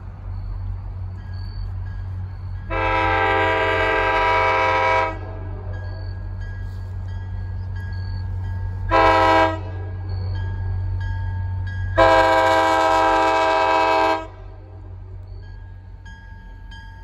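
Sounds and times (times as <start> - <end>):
crossing warning bell ringing: 0.0 - 17.0
train rumble: 0.0 - 17.0
train air horn: 2.7 - 5.7, 8.9 - 10.0, 12.0 - 14.8.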